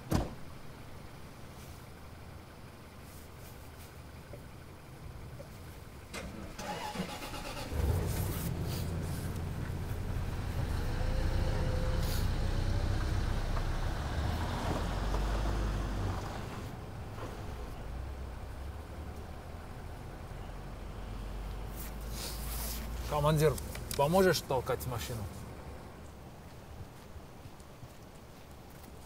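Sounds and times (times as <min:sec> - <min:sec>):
car engine cranking: 0:06.0 - 0:16.7.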